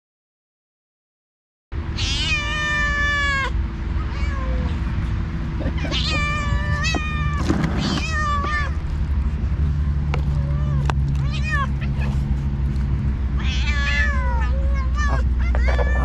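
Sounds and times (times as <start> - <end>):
low background rumble: 1.8 - 16.0
cats yowling: 2.0 - 4.8, 5.6 - 8.9, 10.1 - 12.2, 13.4 - 16.0.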